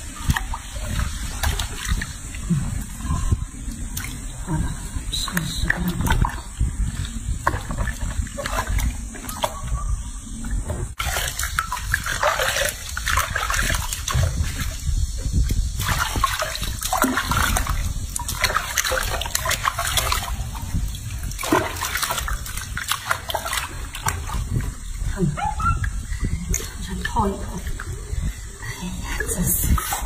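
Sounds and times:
water splashing in a sink: 0.0s - 4.3s, 10.9s - 24.9s.

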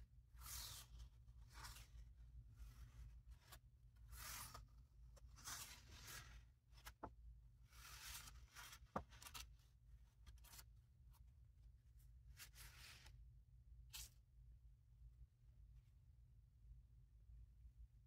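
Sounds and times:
paper pages swishing: 0.4s - 7.1s, 7.7s - 9.5s.

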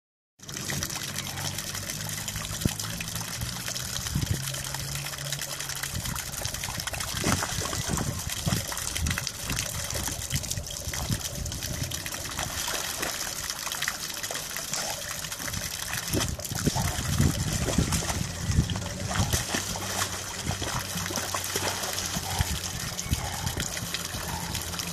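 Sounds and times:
fountain trickling into pond: 0.4s - 24.9s
dog splashing in water: 6.7s - 24.9s.

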